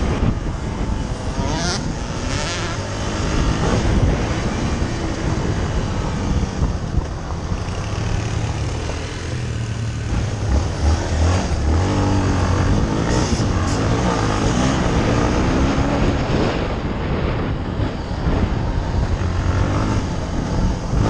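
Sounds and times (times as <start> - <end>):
dirt bike engine revving: 0.0 - 16.8
wind and track noise: 0.0 - 21.0.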